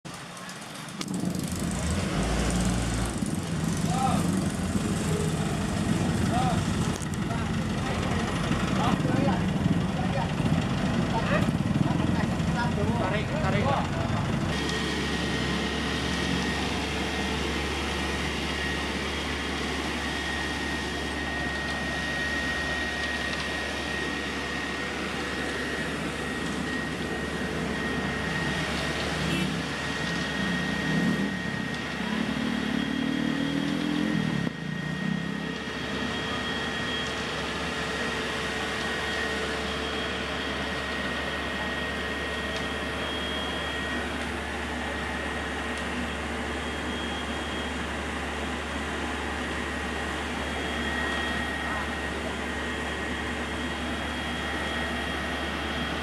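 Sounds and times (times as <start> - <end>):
diesel truck engine running: 0.1 - 56.0
loud engine: 0.1 - 56.0
steady whine: 0.1 - 56.0.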